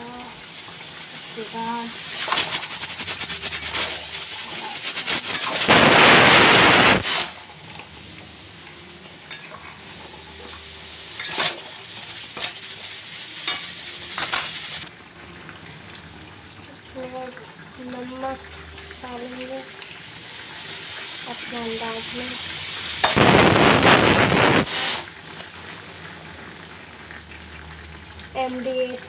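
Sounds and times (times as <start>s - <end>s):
food sizzling: 0.0s - 29.0s
metal spatula scraping a pan: 2.1s - 5.7s, 10.4s - 14.8s
loud burst of hiss: 2.2s - 7.4s, 22.2s - 25.1s.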